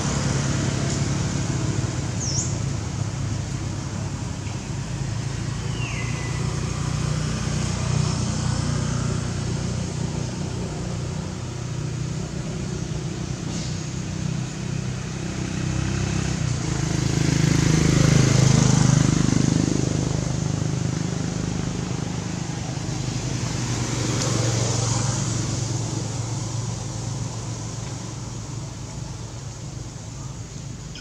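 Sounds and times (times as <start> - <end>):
vehicle engine running: 0.0 - 31.0.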